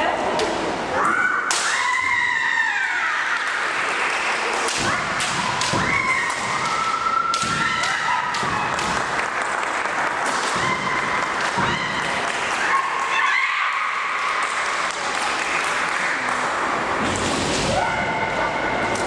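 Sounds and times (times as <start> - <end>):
bamboo swords clacking: 4.6 - 9.4.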